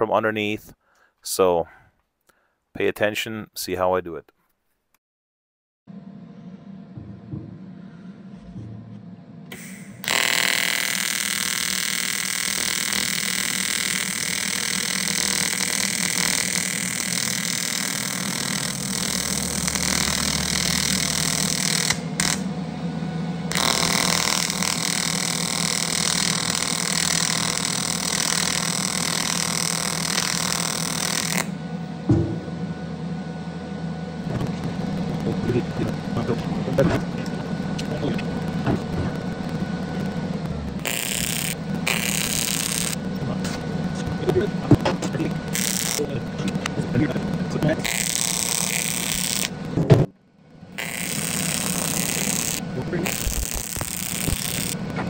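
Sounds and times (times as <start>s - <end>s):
single knock: 7.0s - 7.6s, 32.1s - 32.4s
welding arc buzzing: 9.5s - 32.9s, 34.0s - 49.9s, 50.5s - 55.0s.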